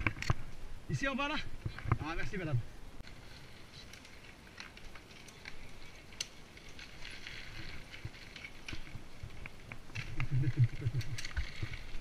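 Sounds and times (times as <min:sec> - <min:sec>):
bike clicks and rattles: 0:00.0 - 0:00.6, 0:03.0 - 0:12.0
bike tyres on dirt trail: 0:00.0 - 0:12.0.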